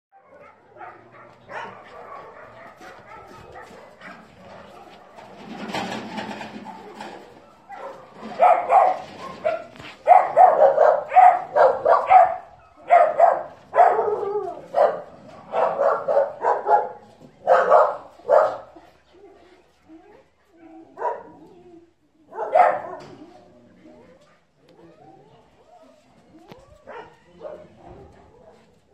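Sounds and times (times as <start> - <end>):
dogs barking: 0.2 - 18.8, 20.6 - 21.4, 22.3 - 23.2, 26.8 - 28.7.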